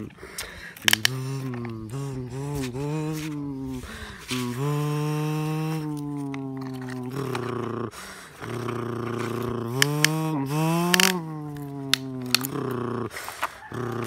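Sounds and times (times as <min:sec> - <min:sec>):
man humming motor noise: 0:00.0 - 0:00.2, 0:00.8 - 0:13.1
sharp plastic clicks: 0:00.0 - 0:03.3, 0:08.3 - 0:13.9
short breaths: 0:00.0 - 0:12.0, 0:13.0 - 0:14.0.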